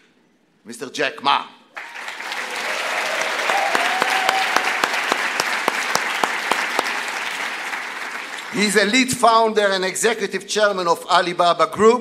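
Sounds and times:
audience applauding: 1.8 - 9.0.

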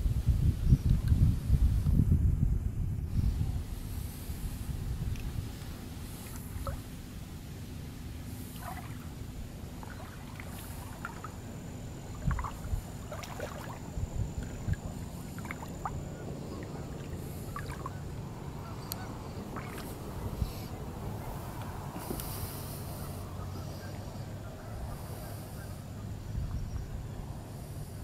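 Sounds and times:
low water rumble: 0.0 - 28.0
water lapping and clicking: 5.0 - 7.1, 8.4 - 24.1.

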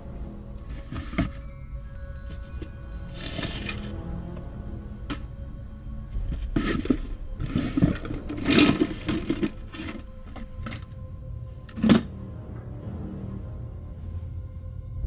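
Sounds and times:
objects rustling and knocking: 0.6 - 1.6, 2.2 - 4.0, 5.0 - 5.3, 6.1 - 11.0, 11.6 - 12.1.

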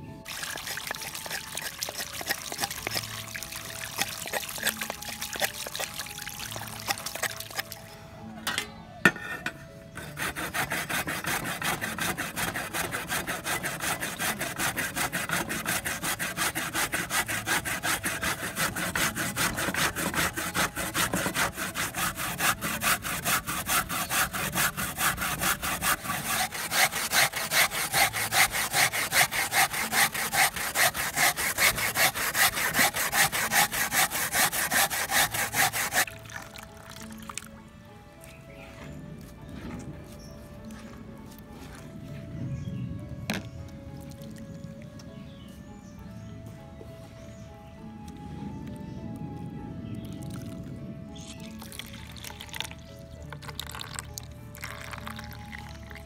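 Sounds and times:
coconut rasping on metal grater: 0.3 - 7.8, 9.4 - 36.1, 54.6 - 55.7.

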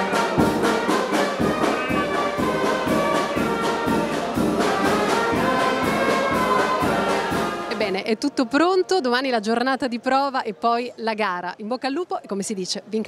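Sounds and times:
brass-led orchestral music: 0.0 - 9.1.

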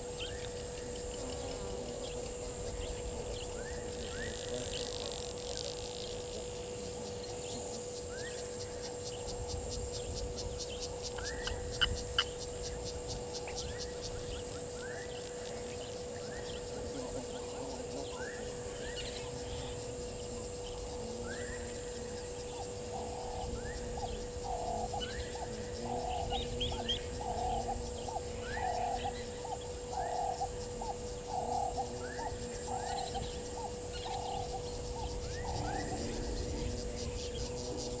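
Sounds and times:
insect buzz: 0.0 - 38.0
birds chirping: 9.9 - 38.0.

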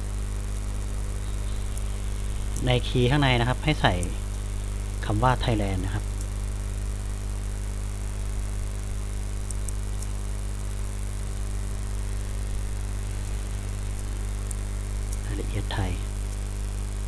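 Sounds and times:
background hiss: 0.0 - 17.0
electrical mains hum: 0.0 - 17.0
faint clicks: 9.4 - 10.2.

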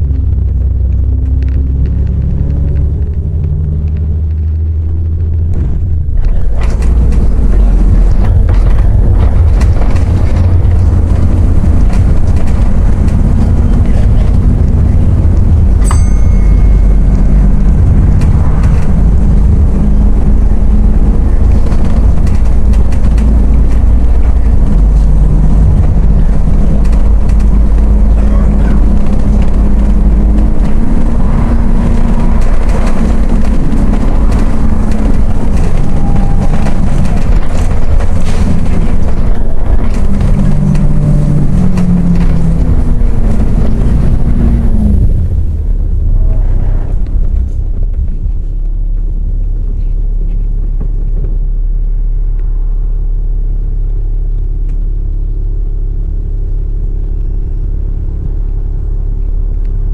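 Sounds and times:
bus engine and road rumble: 0.0 - 59.9
short metallic ting: 15.8 - 17.4.

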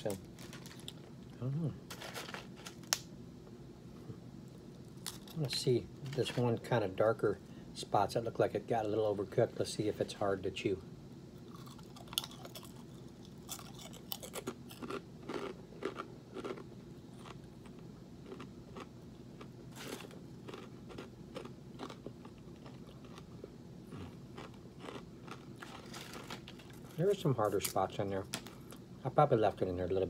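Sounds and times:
person chewing crunchy food: 11.4 - 27.0.

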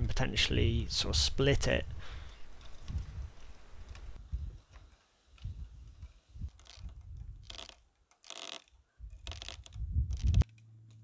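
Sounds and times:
wire tensioning tool rasps: 5.4 - 10.6
low rumbling on microphone: 9.0 - 10.4.

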